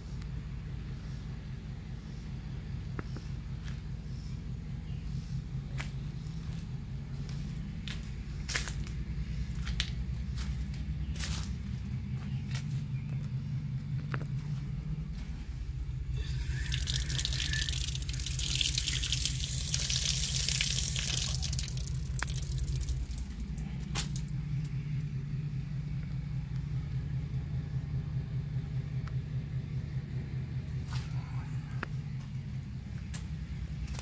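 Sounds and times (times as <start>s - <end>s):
steady low hum: 0.0s - 34.0s
water spraying hiss: 16.2s - 23.6s.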